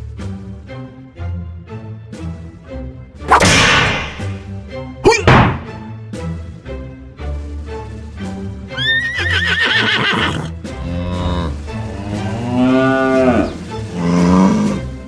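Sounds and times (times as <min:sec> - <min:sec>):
background music: 0:00.0 - 0:15.0
horse whinny: 0:08.8 - 0:11.6
cow mooing: 0:09.8 - 0:15.0.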